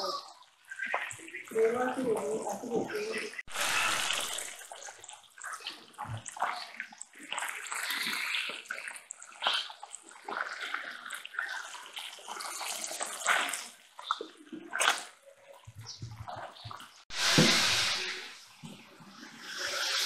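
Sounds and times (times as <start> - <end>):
fish sizzling in hot oil: 3.4 - 5.9, 17.1 - 20.0.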